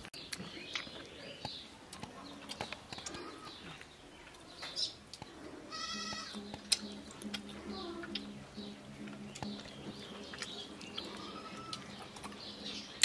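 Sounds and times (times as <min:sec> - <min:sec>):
goat bleating: 0:05.6 - 0:08.4, 0:10.6 - 0:12.1.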